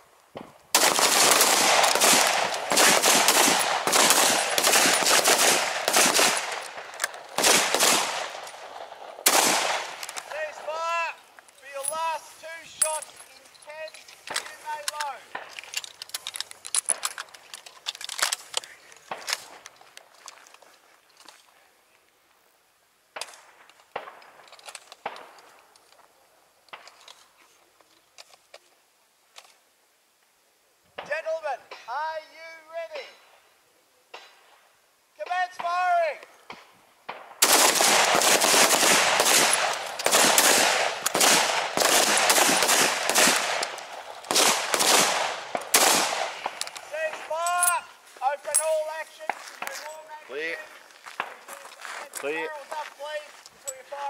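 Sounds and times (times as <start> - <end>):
rifle gunfire: 0.7 - 10.2, 37.1 - 47.2.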